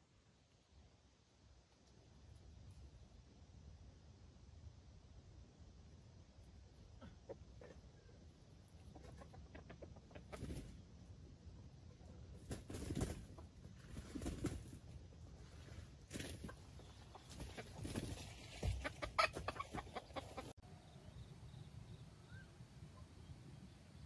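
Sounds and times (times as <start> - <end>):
chicken clucking: 6.8 - 10.8, 16.1 - 22.4.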